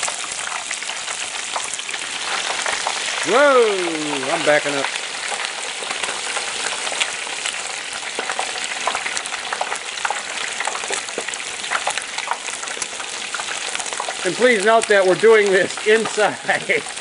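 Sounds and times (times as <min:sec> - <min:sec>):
hot oil sizzling and bubbling: 0:00.0 - 0:17.0
crackling pops: 0:01.5 - 0:14.9.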